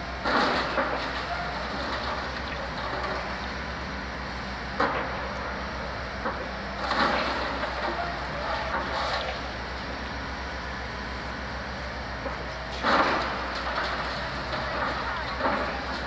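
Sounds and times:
heavy diesel machinery running: 0:00.0 - 0:16.0
debris crunching and breaking: 0:06.8 - 0:09.5.

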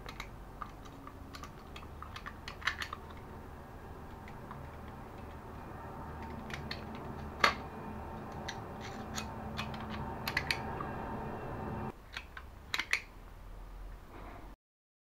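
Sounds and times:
stapler clicking and snapping: 0:12.1 - 0:13.1.

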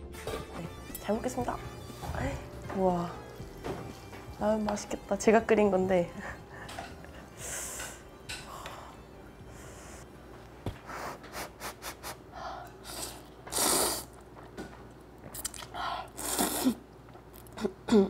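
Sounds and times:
person slurping noodles: 0:12.8 - 0:14.2, 0:16.2 - 0:16.8.

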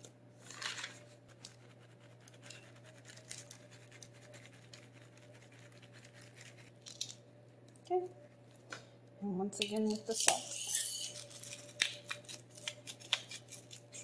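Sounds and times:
steady low hum: 0:00.0 - 0:14.0
bread scratching on baking pan: 0:00.5 - 0:06.8, 0:10.4 - 0:11.4
scrape on baking pan: 0:10.4 - 0:11.2.

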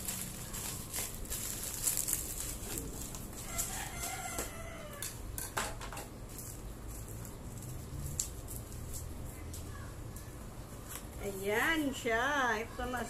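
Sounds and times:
plastic wrapping crinkling: 0:00.0 - 0:04.9, 0:06.3 - 0:09.8
rooster crowing: 0:03.3 - 0:05.2.

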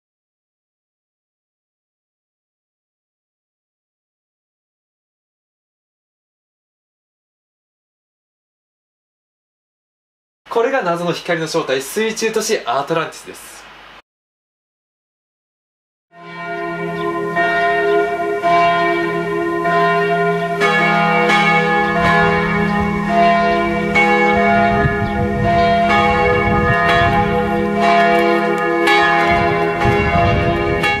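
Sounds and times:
bells ringing: 0:16.2 - 0:31.0.

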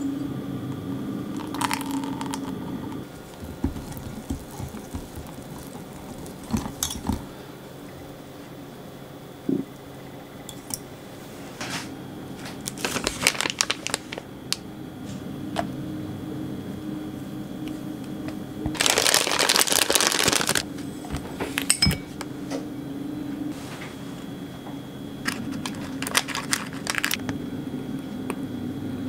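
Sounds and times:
steady low hum: 0:00.0 - 0:29.0
plastic bag crinkling: 0:03.1 - 0:07.3, 0:12.6 - 0:14.3, 0:18.7 - 0:20.6, 0:25.2 - 0:27.3.

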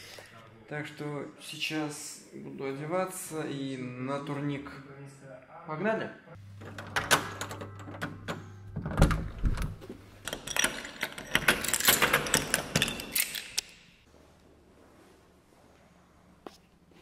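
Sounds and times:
key turning in door lock: 0:06.6 - 0:13.6.

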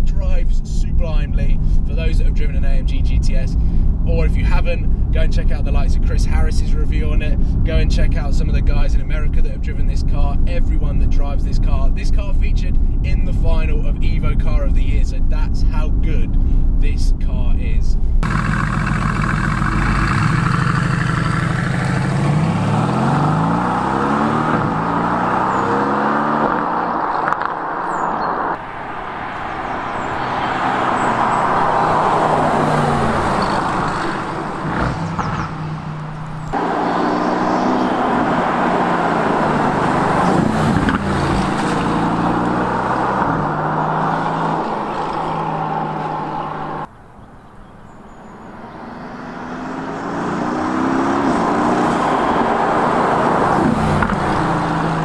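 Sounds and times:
tyre and road noise: 0:18.0 - 0:55.0
car engine accelerating: 0:18.2 - 0:46.9, 0:47.9 - 0:55.0.

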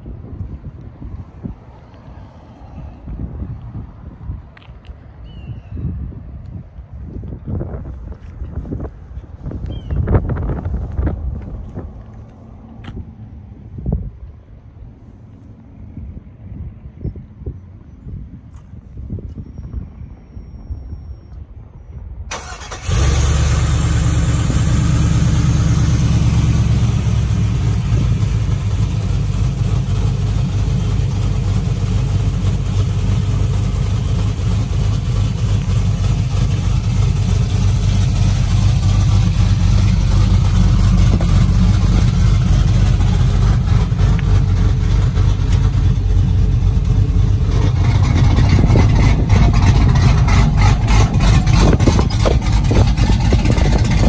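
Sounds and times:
truck engine idling: 0:22.3 - 0:54.0.

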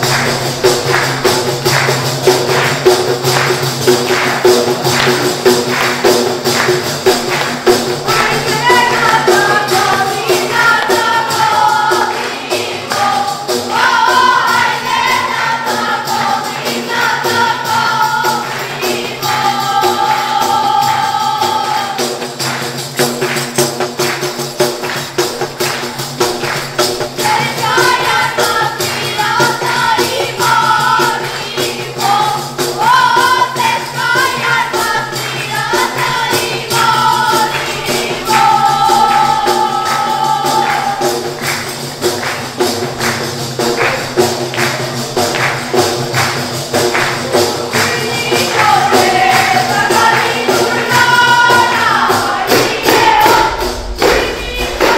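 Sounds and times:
frame drums with jingling: 0:00.0 - 0:54.9
women singing together: 0:04.1 - 0:22.6, 0:27.1 - 0:42.3, 0:46.9 - 0:54.9.

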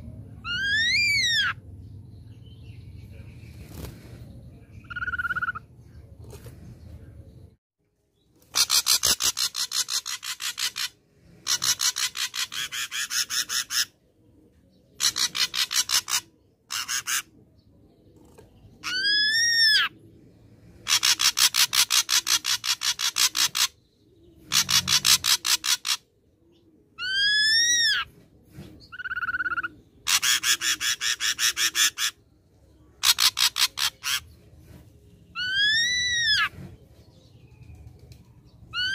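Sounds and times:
bird harsh rasping rattles: 0:08.5 - 0:13.9, 0:15.0 - 0:17.3, 0:20.8 - 0:23.7, 0:24.5 - 0:26.0, 0:33.0 - 0:34.3.

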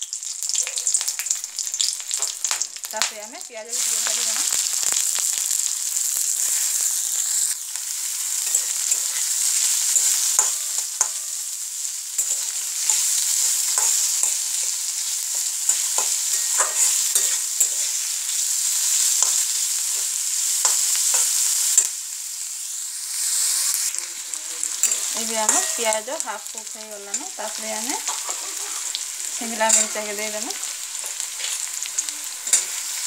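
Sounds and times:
onions sizzling in hot oil: 0:00.0 - 0:33.0
spatula scraping a pan: 0:08.3 - 0:11.3, 0:12.2 - 0:21.9, 0:24.6 - 0:26.0, 0:27.1 - 0:33.0.

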